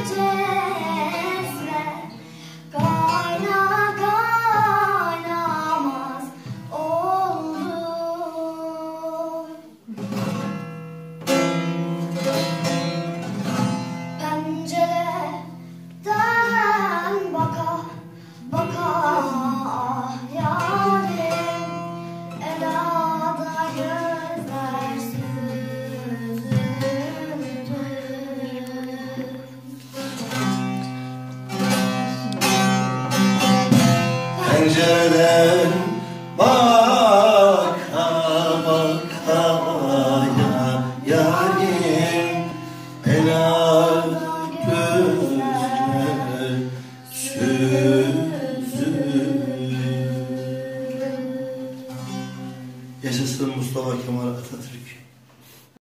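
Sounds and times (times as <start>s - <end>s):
girl singing folk song: 0.0s - 10.5s, 12.1s - 53.3s
long-necked lute plucked and strummed: 9.9s - 53.3s.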